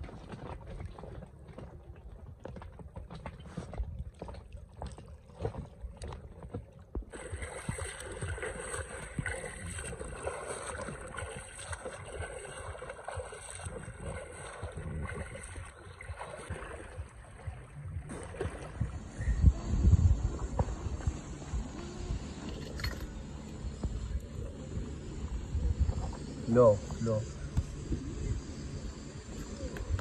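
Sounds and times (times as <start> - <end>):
lake water lapping: 0.0 - 30.0
wind rumble on microphone: 0.0 - 30.0
swimmer's strokes splashing: 7.1 - 19.6.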